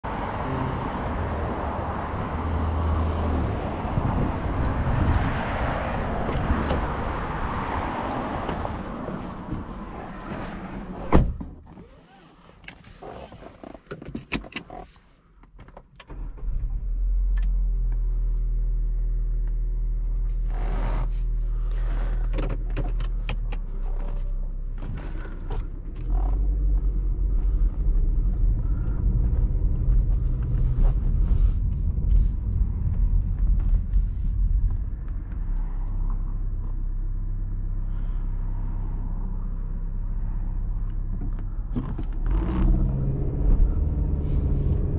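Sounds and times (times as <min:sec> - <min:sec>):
car door shutting: 0:08.4 - 0:12.3
car engine running: 0:20.3 - 0:44.9.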